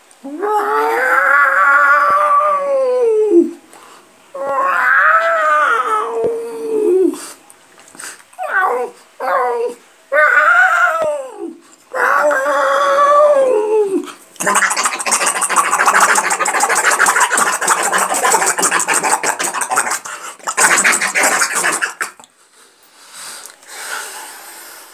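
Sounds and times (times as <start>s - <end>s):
man imitating cat meow: 0.2s - 3.6s, 4.4s - 7.2s, 8.4s - 14.0s
man making harsh hissing noise: 13.2s - 24.9s.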